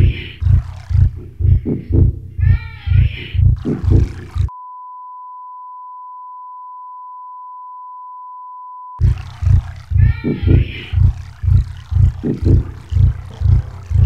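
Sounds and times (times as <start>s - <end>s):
music with heavy bass beat: 0.0s - 4.5s, 9.0s - 14.0s
steady test tone beep: 3.4s - 13.7s.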